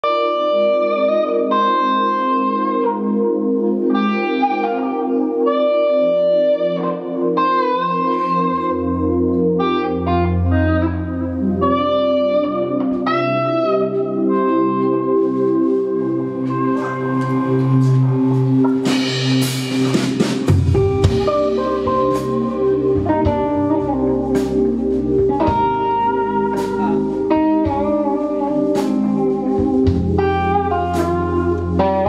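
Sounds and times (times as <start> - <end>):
backing chords: 0.0 - 32.0
electric guitar lead melody: 0.0 - 32.0
bass line: 16.1 - 32.0.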